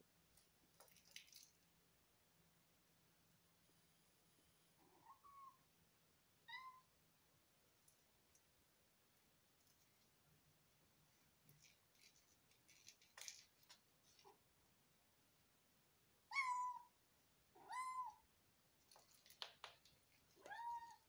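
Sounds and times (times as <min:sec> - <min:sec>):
faint taps and rustles: 0:18.8 - 0:20.6.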